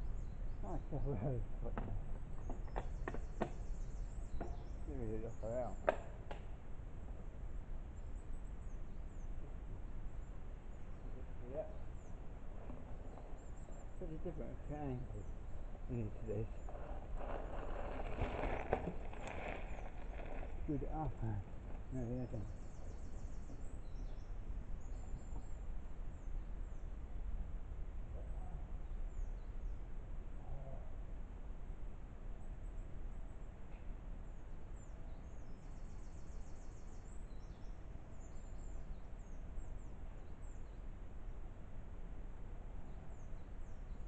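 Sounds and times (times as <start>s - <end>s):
faint bird chirps: 0.0s - 5.9s, 7.9s - 27.2s, 28.1s - 31.1s, 32.3s - 41.0s
wind rumble on microphone: 14.7s - 31.2s
faint call: 30.4s - 31.0s.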